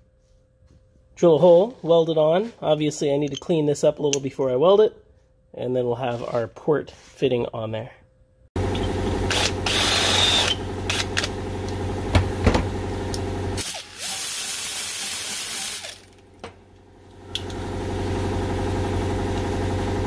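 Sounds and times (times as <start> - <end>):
steady mechanical hum: 0.0 - 14.2
drill cutting metal: 9.2 - 11.3
die grinder hissing: 9.3 - 11.2.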